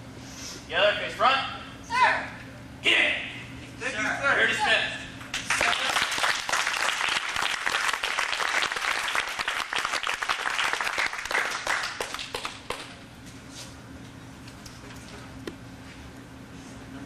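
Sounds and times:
audience applauding: 5.3 - 12.9.

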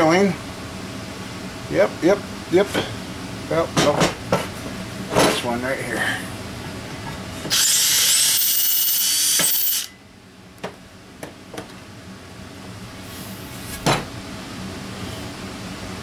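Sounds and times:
cordless drill drilling metal: 7.5 - 9.9.

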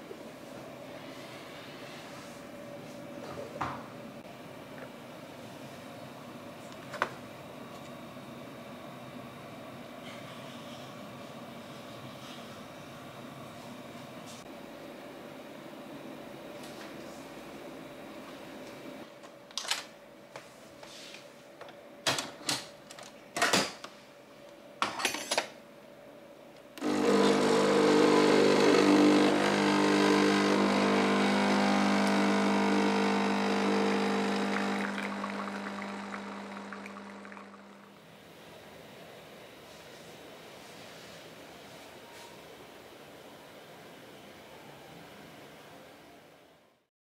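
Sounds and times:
coffee machine pump buzzing: 26.8 - 38.0.

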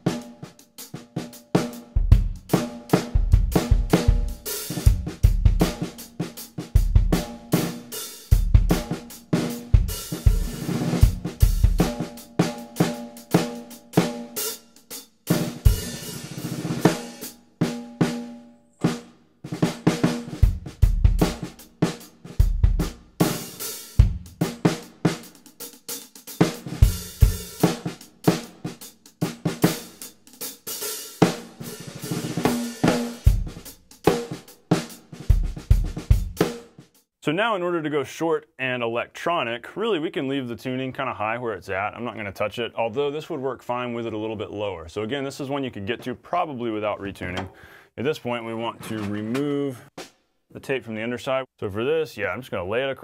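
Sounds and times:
tight snare drum crack: 0.0 - 18.2, 18.8 - 37.0
drum kit groove: 0.0 - 37.1, 48.2 - 50.2.

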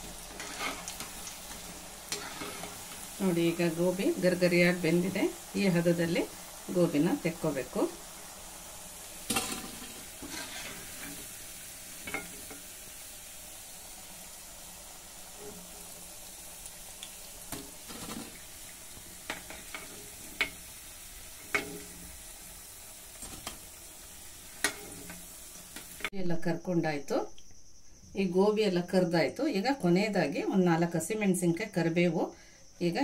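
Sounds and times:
food sizzling in hot oil: 0.0 - 26.2.

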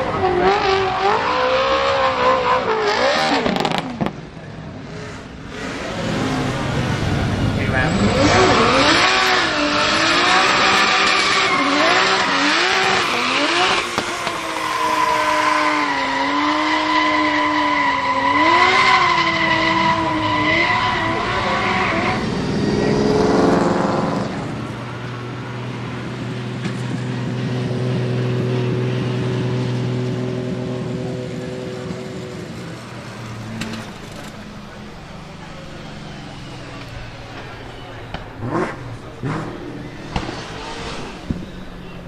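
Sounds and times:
car engine revving: 0.0 - 42.0
tyres screeching: 7.8 - 24.2.

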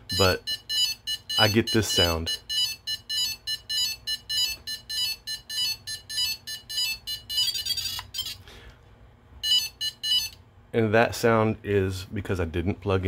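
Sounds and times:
drone error beeps: 0.0 - 8.4.

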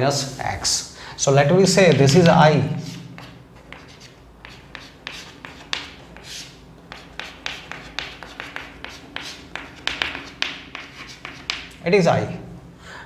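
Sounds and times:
chalk tapping and scratching on chalkboard: 1.6 - 11.8.

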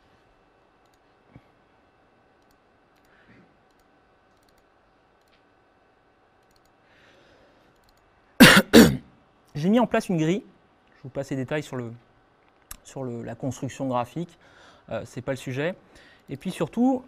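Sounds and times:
computer clicks: 2.4 - 5.5, 6.4 - 6.8, 7.7 - 8.1.

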